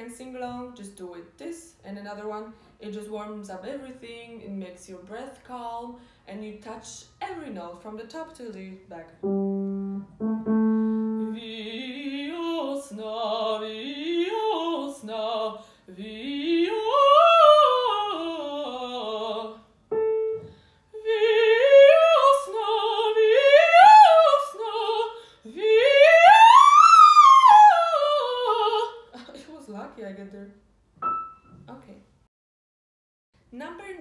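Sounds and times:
piano note: 9.2 - 11.5, 19.9 - 20.7, 31.0 - 31.7.

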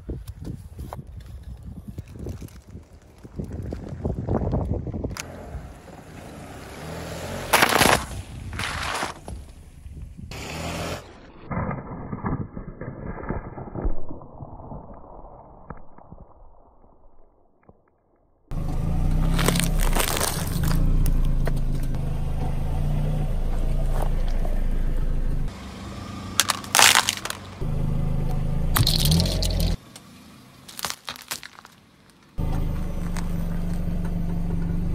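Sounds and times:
car rumbling: 2.2 - 11.5, 18.5 - 34.9
tyre crushing cans: 19.3 - 20.8, 26.4 - 27.6, 30.7 - 32.3
bags bursting with sharp cracks: 26.4 - 27.5, 30.7 - 31.8.

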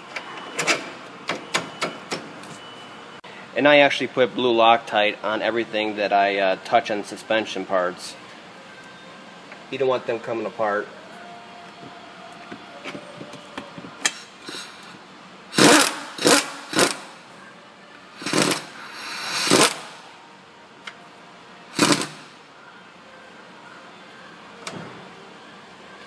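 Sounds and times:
power ratchet whirring: 15.5 - 17.1, 18.2 - 19.9, 21.8 - 22.3.

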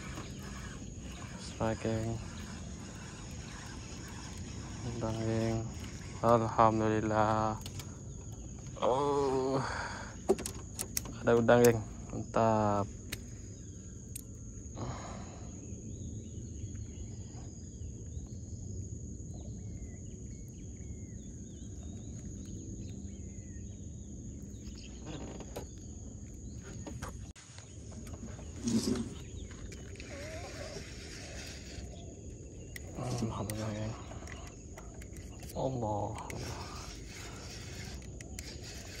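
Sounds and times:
high drone like insects: 0.0 - 39.0
faint bird calls: 19.3 - 39.0.

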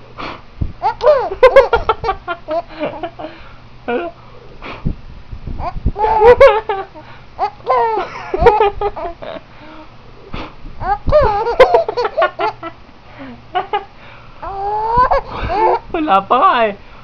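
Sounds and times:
baby laughing: 0.8 - 3.2, 5.6 - 9.4, 10.8 - 12.8, 14.4 - 15.9.

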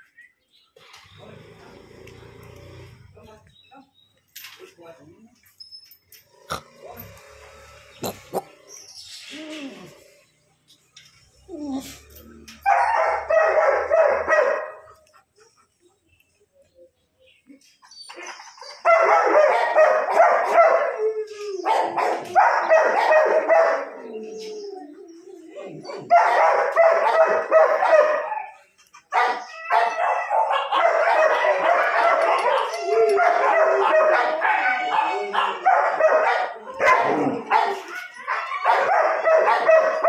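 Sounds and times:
dogs barking: 12.6 - 15.0, 18.8 - 21.0, 21.6 - 24.1, 25.9 - 40.0.

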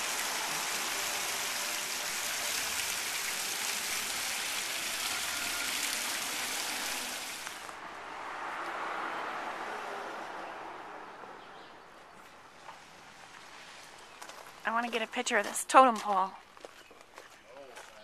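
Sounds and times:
fountain water splashing: 0.0 - 7.8.

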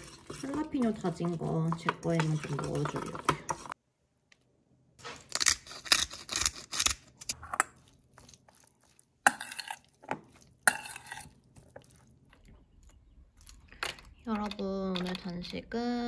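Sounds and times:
spoon scraping metal bowl: 0.0 - 3.8, 9.2 - 12.0.

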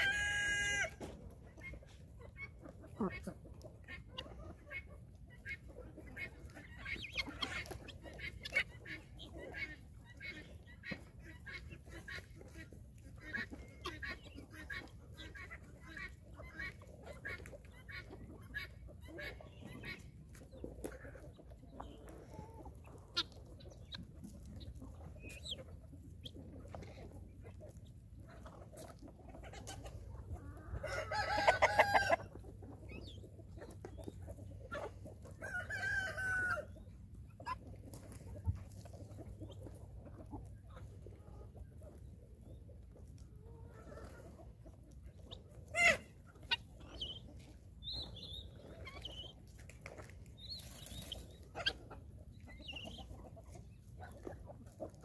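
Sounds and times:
chickens clucking: 0.0 - 55.0
rooster crowing: 30.9 - 32.2.

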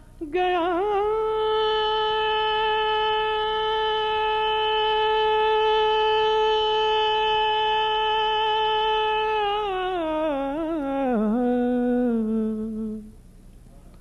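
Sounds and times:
man singing unaccompanied: 0.0 - 13.1.

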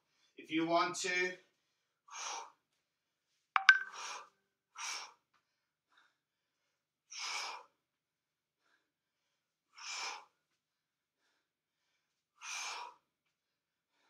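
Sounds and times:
man breathing heavily: 11.2 - 13.0.

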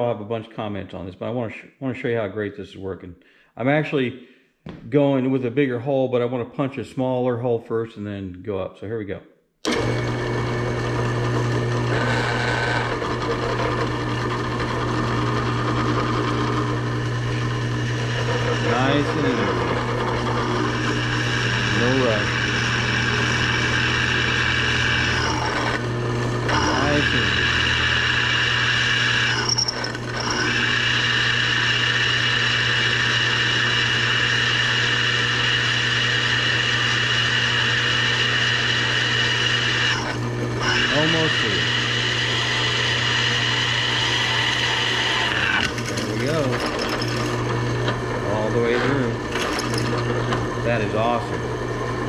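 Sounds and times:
drill press drilling steel: 9.7 - 52.0.

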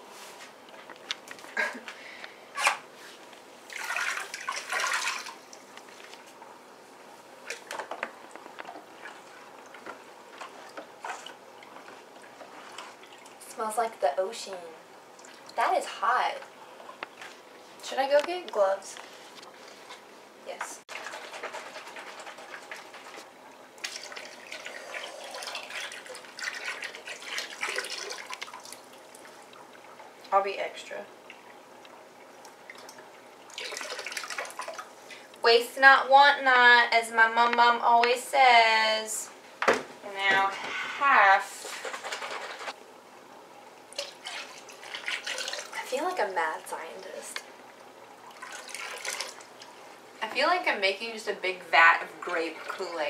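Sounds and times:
liquid pouring into water: 23.8 - 30.0, 32.3 - 35.0, 43.9 - 45.8, 48.1 - 49.7.

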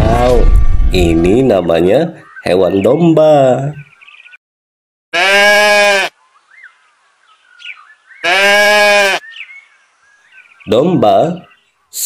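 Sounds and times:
sheep bleating: 5.1 - 6.2, 8.2 - 9.2.

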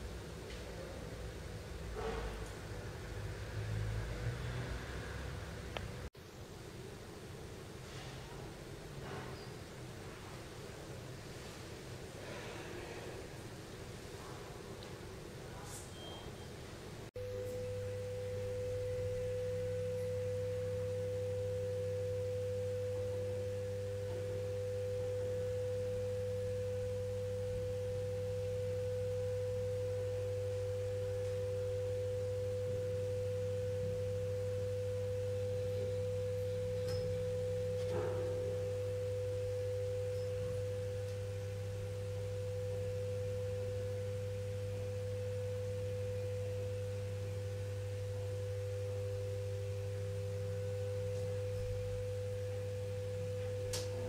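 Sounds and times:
low steady hum: 0.0 - 54.0
steady pure tone: 10.8 - 54.0.

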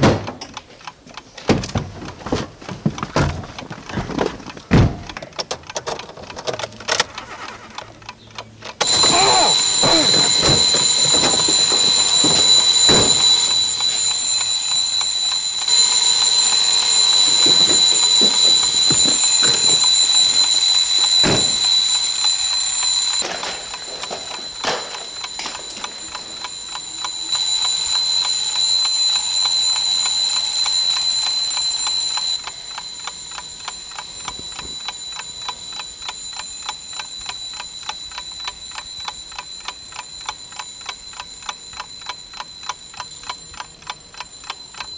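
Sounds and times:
clock ticking: 7.1 - 44.9
thumps: 8.8 - 14.5
electronic alarm ringing: 8.8 - 44.9.

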